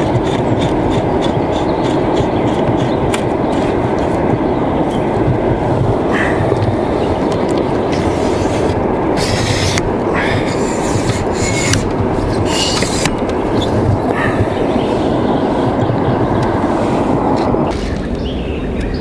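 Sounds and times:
wind buffeting microphone: 0.0s - 19.0s
hands rubbing fishing rod: 7.9s - 13.7s.

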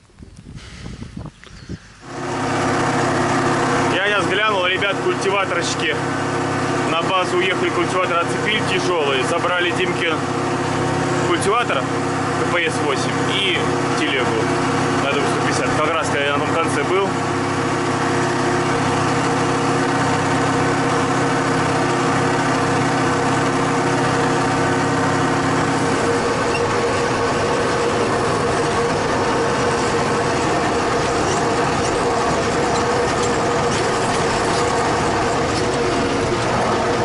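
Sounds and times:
tractor engine running: 0.0s - 37.0s.

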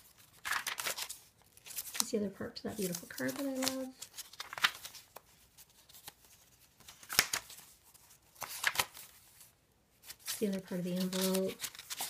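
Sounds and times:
paper pages rustling: 0.0s - 12.0s
sharp paper flicks: 0.3s - 2.1s, 2.9s - 5.2s, 6.8s - 7.6s, 8.4s - 9.1s, 10.1s - 12.0s.

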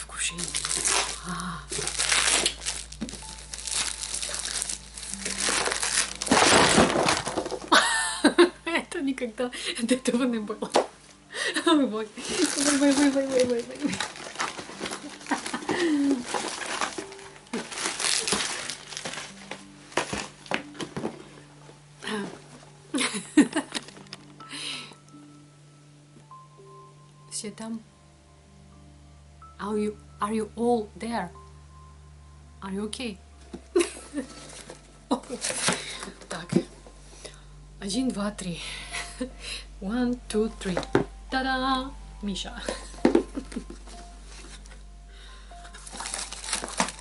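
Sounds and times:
packing material crinkling: 0.2s - 7.9s, 12.2s - 21.2s, 33.8s - 36.5s, 45.6s - 47.0s.

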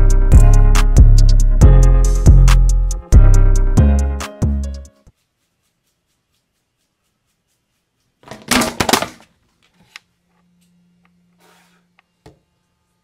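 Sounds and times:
camera falling and clattering: 8.2s - 9.3s.

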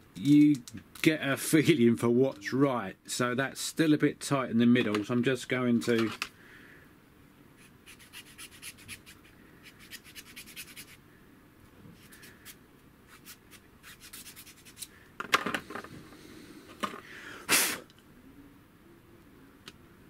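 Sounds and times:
needle file rasping: 7.6s - 11.0s, 12.0s - 14.9s.

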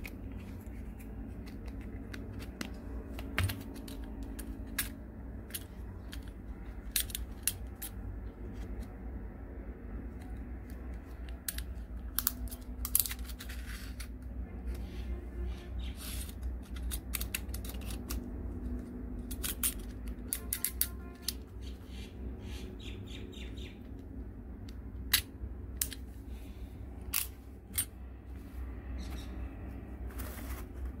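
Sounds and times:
steady low rumble: 0.0s - 20.4s, 21.3s - 31.0s
plastic and metal clicks: 16.2s - 21.5s.

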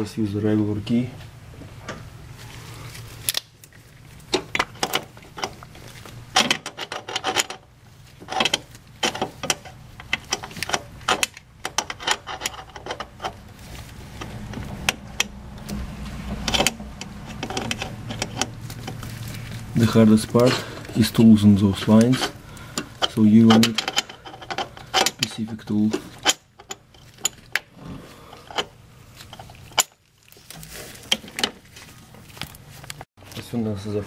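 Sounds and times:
low steady hum: 0.0s - 34.0s
metal wrench clinking on fittings: 21.7s - 27.4s.

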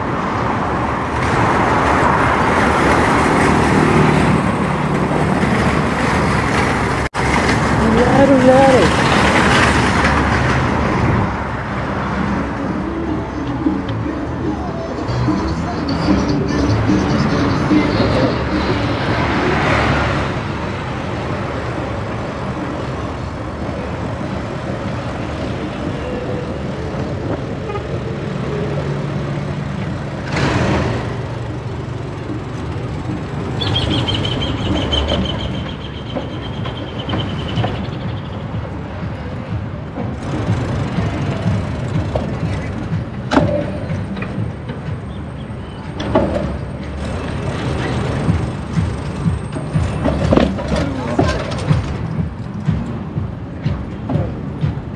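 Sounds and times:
passing traffic rumble: 0.0s - 54.9s
high squeal: 33.5s - 38.4s.

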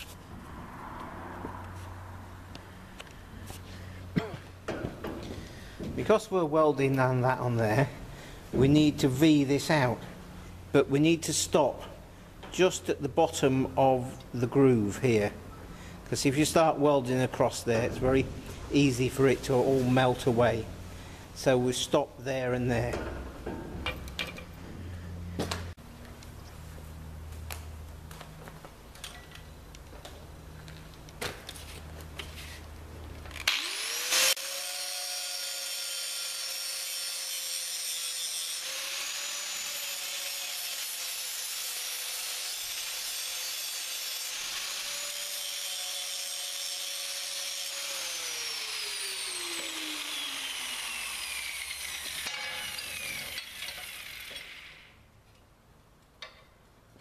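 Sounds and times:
angle grinder grinding steel: 33.4s - 55.0s.

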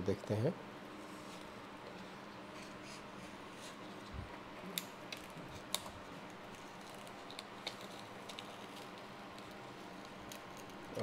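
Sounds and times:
film peeling clicks and crackles: 4.6s - 11.0s.

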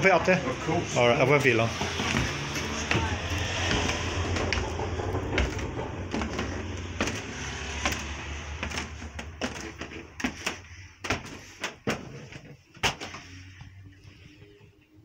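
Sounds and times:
footsteps on wooden stairs: 1.2s - 13.2s
low hum: 1.8s - 9.8s.

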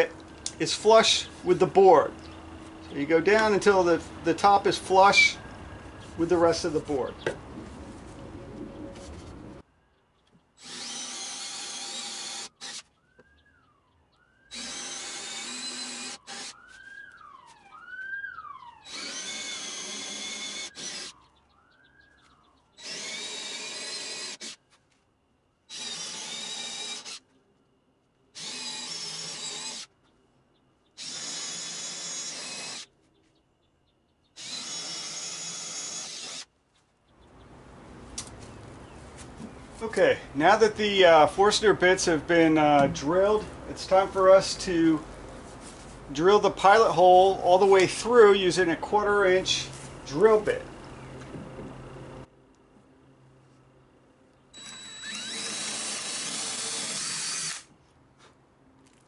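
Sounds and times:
cordless drill boring into wood: 10.6s - 12.9s, 14.5s - 16.6s, 18.8s - 21.2s, 22.8s - 24.6s, 25.7s - 27.2s, 28.4s - 29.9s, 31.0s - 32.9s, 34.4s - 36.5s, 54.6s - 57.7s.

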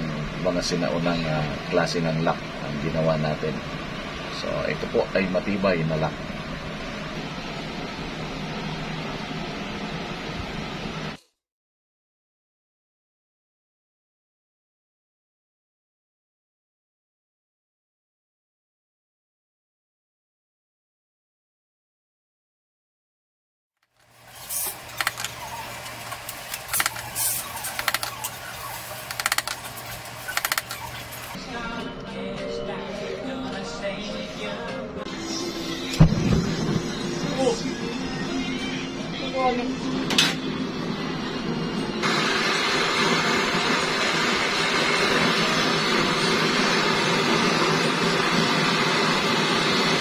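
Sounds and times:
steady low hum: 0.0s - 11.2s, 24.1s - 50.0s
gas torch hissing: 24.0s - 31.4s, 42.0s - 50.0s
sharp metallic clicks: 27.7s - 28.3s, 29.1s - 31.0s.

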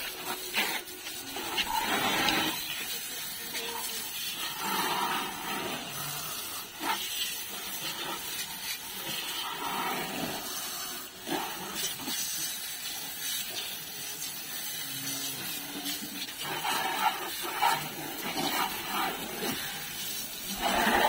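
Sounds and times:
water jet hissing from hose nozzle: 0.0s - 21.0s.

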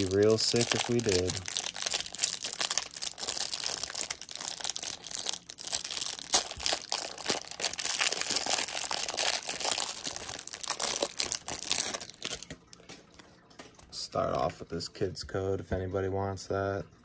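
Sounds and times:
plastic wrapper crinkling and tearing: 0.0s - 13.4s.

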